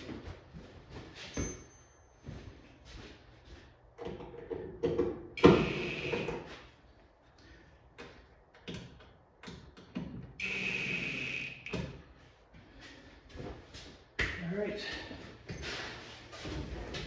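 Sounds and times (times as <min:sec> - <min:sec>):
cordless drill whining: 0:05.4 - 0:06.3.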